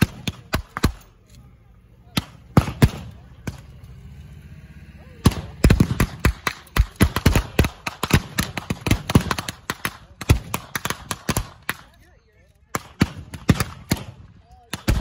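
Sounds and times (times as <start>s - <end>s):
blank gunshots firing: 2.1s - 3.7s, 5.2s - 11.9s.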